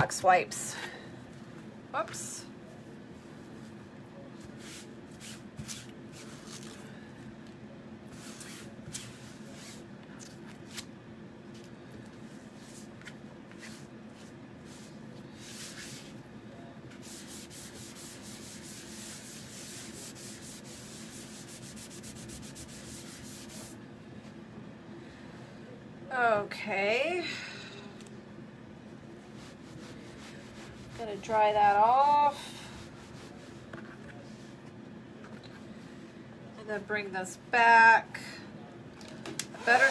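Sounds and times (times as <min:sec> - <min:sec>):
wipe scrubbing a stencil: 0:12.5 - 0:16.2, 0:16.9 - 0:23.8, 0:29.2 - 0:34.6.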